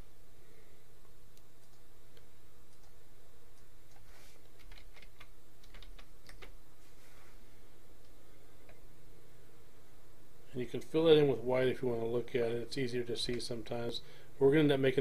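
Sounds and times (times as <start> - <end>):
steady low hum: 0.0 - 15.0
computer keyboard typing: 3.9 - 6.6.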